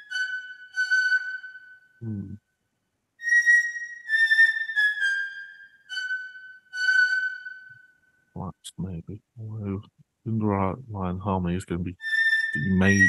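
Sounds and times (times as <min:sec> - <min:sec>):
flute-like notes: 0:00.0 - 0:02.4, 0:03.2 - 0:08.5, 0:11.8 - 0:13.0.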